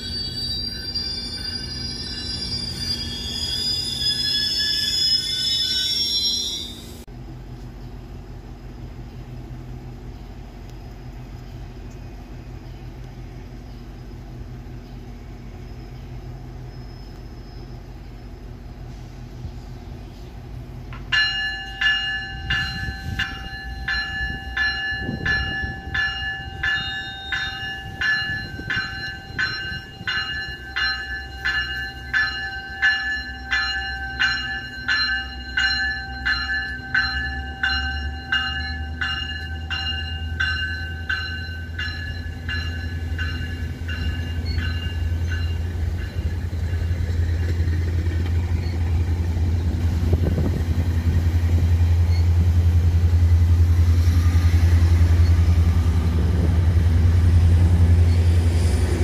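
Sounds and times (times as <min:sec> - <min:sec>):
railway bell ringing: 0:00.0 - 0:07.1, 0:20.9 - 0:59.0.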